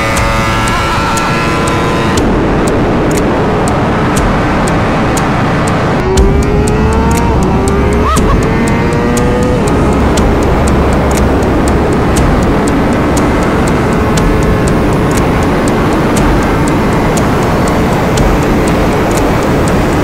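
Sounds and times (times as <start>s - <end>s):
motorcycle engine accelerating: 0.0s - 20.0s
music with a steady beat: 0.0s - 20.0s.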